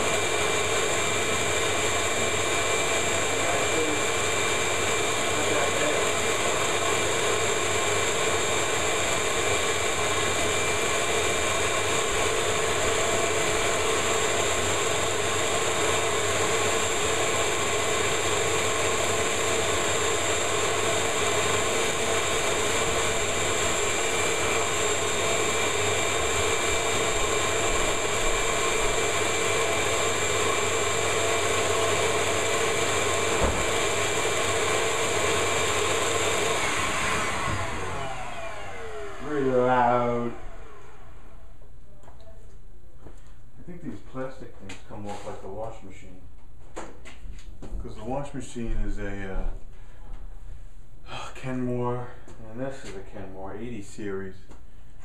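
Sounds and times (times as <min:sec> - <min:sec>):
shop vacuum running: 0:00.0 - 0:42.2.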